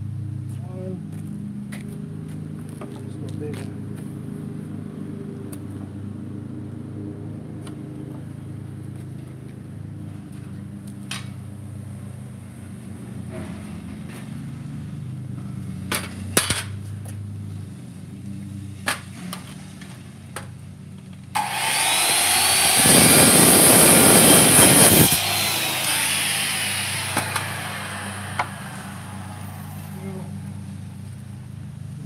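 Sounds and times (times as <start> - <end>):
circular saw cutting wood: 21.4 - 31.3
saw blade whine winding down: 21.4 - 31.5.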